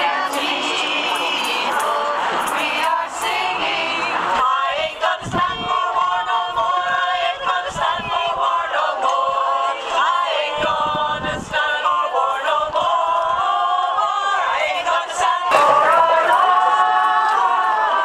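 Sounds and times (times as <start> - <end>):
group singing unaccompanied: 0.0 - 18.0.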